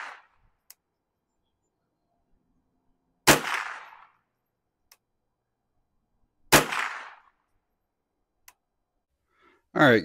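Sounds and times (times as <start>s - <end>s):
rifle shots echoing: 0.0s - 0.4s, 3.2s - 4.2s, 6.5s - 7.4s.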